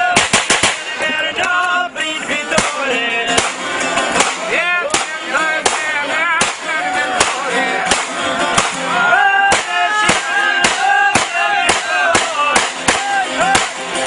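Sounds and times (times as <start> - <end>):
man singing: 0.0 - 3.6, 4.3 - 13.8
handgun shots: 0.2 - 0.9, 2.6 - 2.8, 3.4 - 3.6, 4.2 - 8.8, 9.5 - 13.8
clarinet folk music: 0.8 - 14.0.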